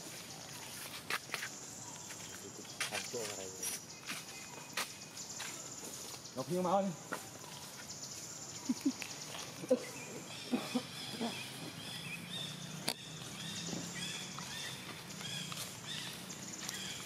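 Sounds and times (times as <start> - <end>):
bird chirps: 0.0 - 17.0.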